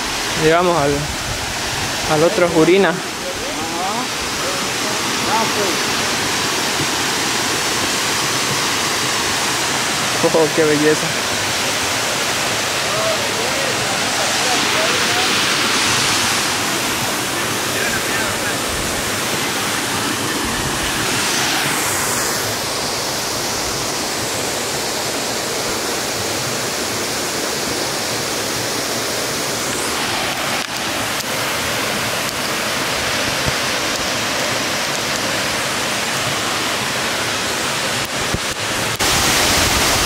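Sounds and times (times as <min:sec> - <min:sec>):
stream running over rocks: 0:00.0 - 0:40.0
waterfall rushing: 0:00.0 - 0:40.0.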